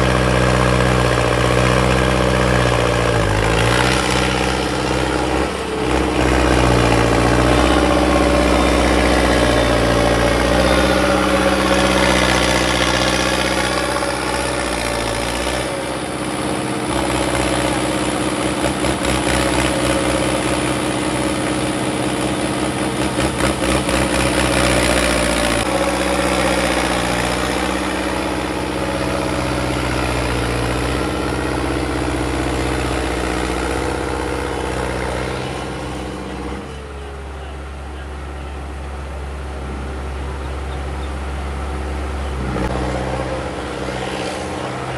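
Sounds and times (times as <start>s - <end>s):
tractor diesel engine running: 0.0s - 44.9s.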